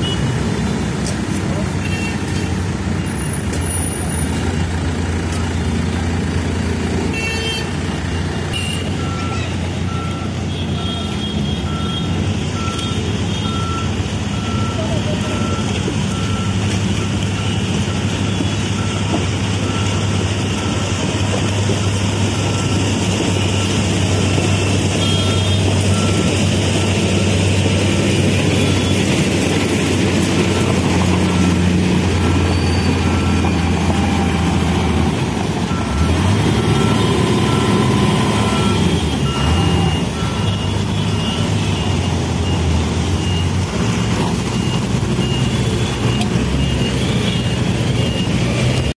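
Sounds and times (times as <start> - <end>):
construction machine diesel engines: 0.0 - 49.0
reversing alarm beeping: 8.6 - 29.4, 30.4 - 35.0, 35.7 - 48.9.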